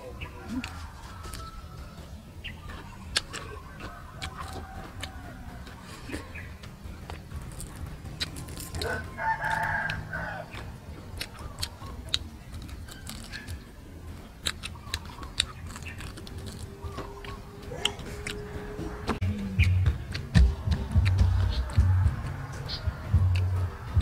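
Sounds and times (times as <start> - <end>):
rooster crowing: 0.3 - 2.1, 3.8 - 5.8, 8.8 - 10.6
crispy meat tearing and chewing: 0.4 - 2.0, 2.7 - 18.4.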